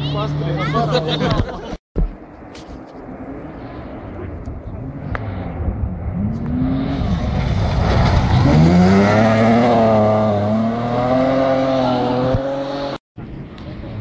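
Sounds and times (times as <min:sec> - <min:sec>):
rally car engine at high revs: 0:04.8 - 0:13.0.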